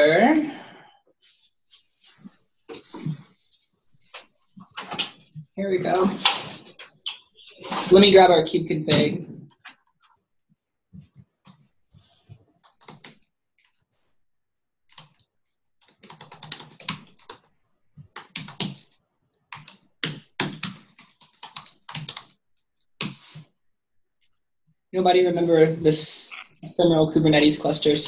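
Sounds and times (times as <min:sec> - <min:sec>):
keyboard typing: 0:12.6 - 0:13.7, 0:14.9 - 0:22.4.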